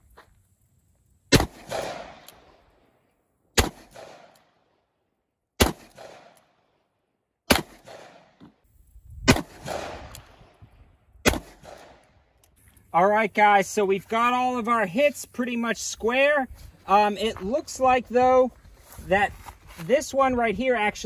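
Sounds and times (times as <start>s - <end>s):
revolver gunshots with echo: 1.3s - 2.5s, 3.6s - 4.4s, 5.6s - 6.4s, 7.5s - 8.4s, 9.2s - 10.6s, 11.2s - 12.0s.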